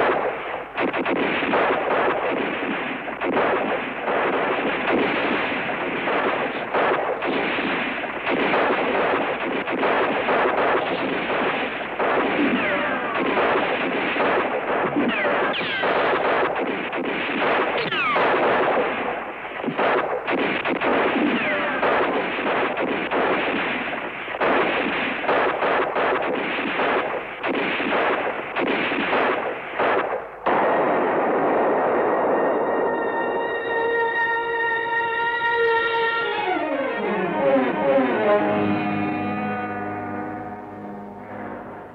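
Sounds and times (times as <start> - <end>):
rifle and machine-gun fire: 0.0 - 32.6
music: 31.9 - 41.9
falling whines: 33.1 - 41.9.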